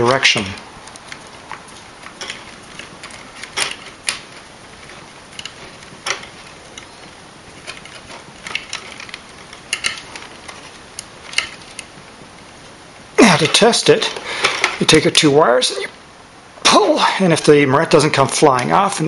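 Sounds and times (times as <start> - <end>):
plastic and wire clicks and scrapes: 0.4 - 12.0.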